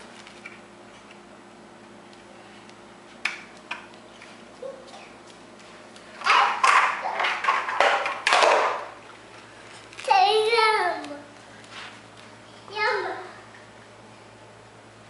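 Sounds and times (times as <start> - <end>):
plastic trays clattering on tile: 6.2 - 8.9.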